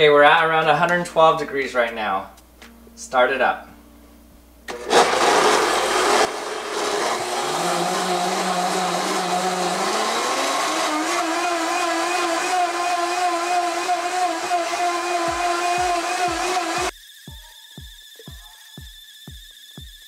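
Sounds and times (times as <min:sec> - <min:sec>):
blender motor whining: 0:04.7 - 0:20.0.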